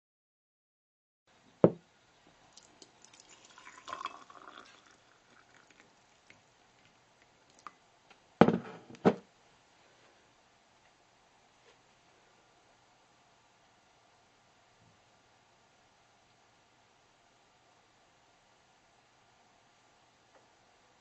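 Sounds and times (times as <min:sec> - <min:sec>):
liquid pouring into a mug: 0:02.5 - 0:07.7
sharp knock: 0:08.4 - 0:09.2
thumps: 0:08.4 - 0:09.2.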